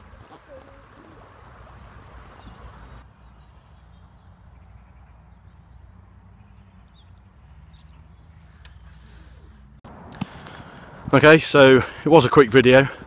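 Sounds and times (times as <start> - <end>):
faint bird chirps: 0.2 - 9.8.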